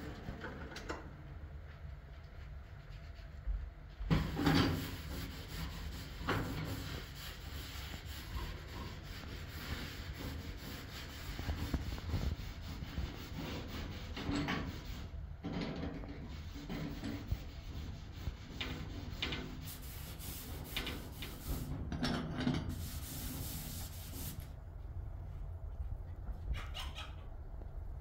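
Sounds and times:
cloth scrubbing cooker hob: 0:04.2 - 0:15.1, 0:22.6 - 0:24.4.

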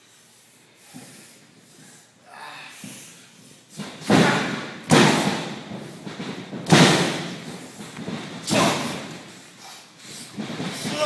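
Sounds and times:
heavy thuds of boxing blows: 0:03.7 - 0:11.0.

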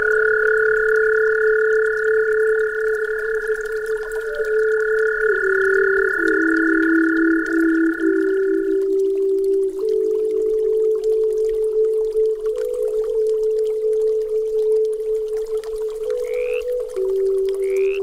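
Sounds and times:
high pure tone: 0:00.0 - 0:11.0
creek water running: 0:00.0 - 0:18.0
flute holding low notes: 0:00.0 - 0:18.0.

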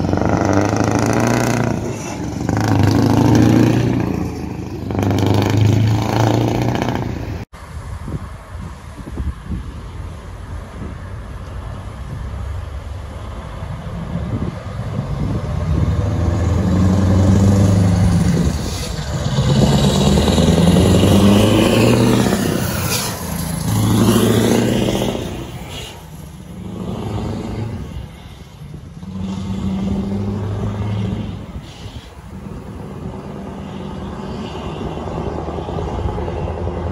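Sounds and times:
truck engine revving through gears: 0:00.0 - 0:07.5, 0:14.9 - 0:28.3, 0:28.9 - 0:33.5.

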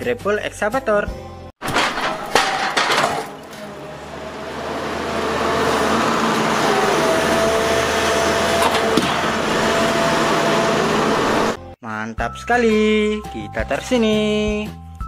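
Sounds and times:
excavator diesel engine running: 0:01.7 - 0:11.8.

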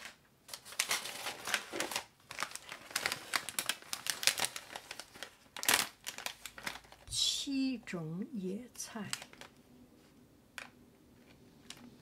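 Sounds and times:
plastic wrappers crinkling: 0:00.0 - 0:07.4, 0:08.8 - 0:09.6.

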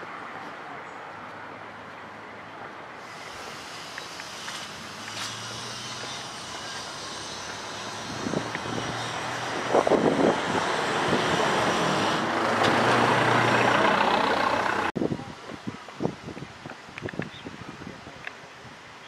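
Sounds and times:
rushing noise: 0:02.9 - 0:15.0
passing engine hum: 0:04.6 - 0:15.0.

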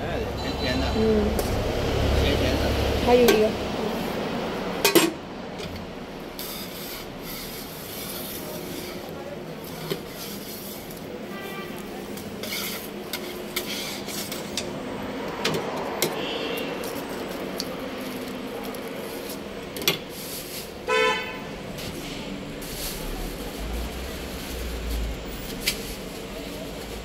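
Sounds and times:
metal spatula scraping griddle: 0:06.4 - 0:14.7
vehicle horn honk: 0:11.3 - 0:11.9, 0:20.9 - 0:21.5.

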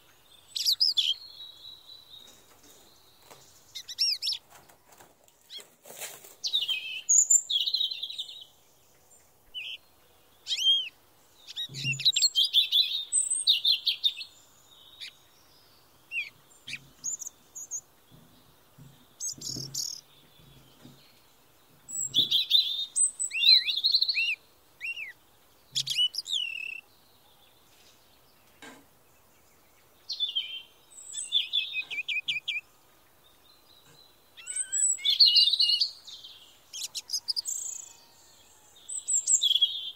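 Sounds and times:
songbirds singing: 0:00.0 - 0:39.9
soft low knocks: 0:11.6 - 0:12.2, 0:18.0 - 0:22.4.

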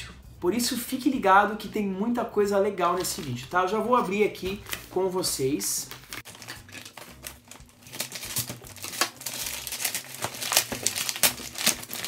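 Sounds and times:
paper wrapping crinkling: 0:05.8 - 0:12.0.

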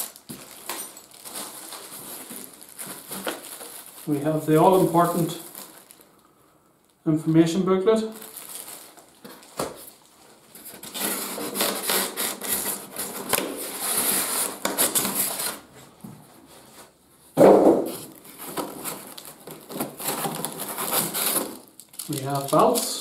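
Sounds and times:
polystyrene scraping against cardboard: 0:00.0 - 0:06.1, 0:08.2 - 0:17.0, 0:17.9 - 0:23.0
plastic bag rustling: 0:00.0 - 0:06.5, 0:08.0 - 0:17.0, 0:17.8 - 0:23.0.

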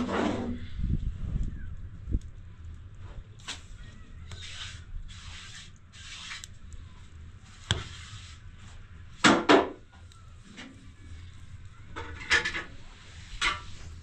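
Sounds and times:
hand scraping rough surface: 0:00.0 - 0:00.8, 0:04.3 - 0:06.6, 0:07.4 - 0:08.8, 0:12.0 - 0:14.0.

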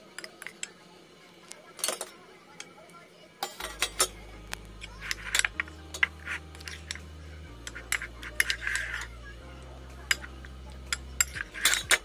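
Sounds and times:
spoon scraping ceramic bowl: 0:04.8 - 0:09.3, 0:10.0 - 0:12.0.

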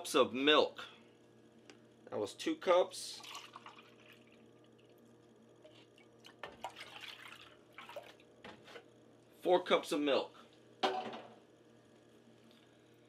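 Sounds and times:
milk pouring and splashing: 0:03.2 - 0:05.0, 0:05.6 - 0:08.3.

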